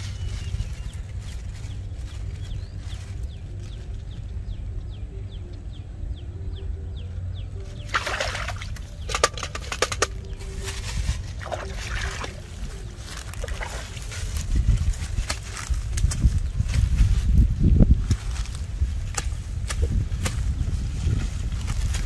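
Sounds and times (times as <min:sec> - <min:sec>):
water sloshing and splashing: 0:07.8 - 0:14.5.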